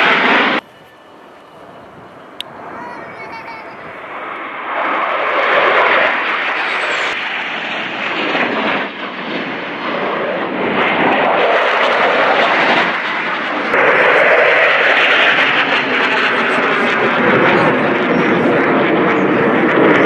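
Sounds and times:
jets flying overhead: 0.0s - 20.0s.

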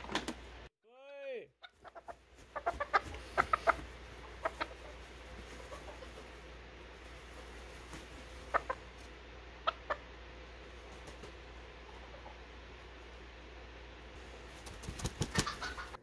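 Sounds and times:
rooster clucking: 1.6s - 6.6s, 8.4s - 9.0s, 9.6s - 10.2s, 11.6s - 12.6s, 15.0s - 16.0s.

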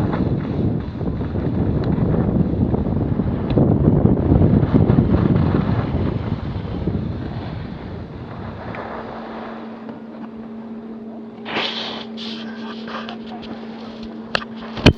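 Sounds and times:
wind buffeting microphone: 0.0s - 10.5s
steady low hum: 0.0s - 14.9s
skis sliding on packed snow: 4.5s - 9.9s, 11.4s - 14.0s.

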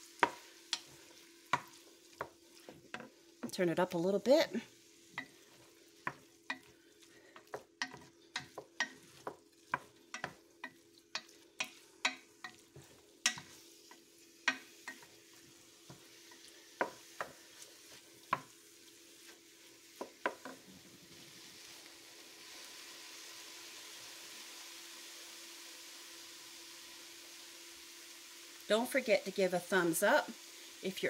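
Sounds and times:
oil sizzling: 0.0s - 31.0s
wooden spoon knocking on pot: 7.3s - 13.6s, 16.8s - 17.4s, 20.0s - 20.6s.

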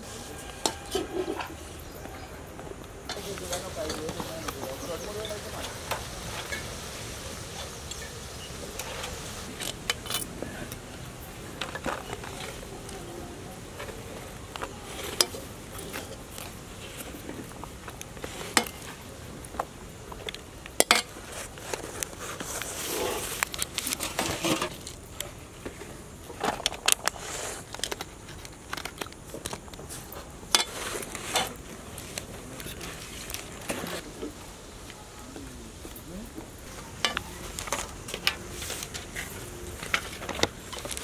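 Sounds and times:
metal spoon scraping pan: 0.1s - 1.6s
foil crinkling: 3.2s - 34.1s, 36.6s - 41.0s.

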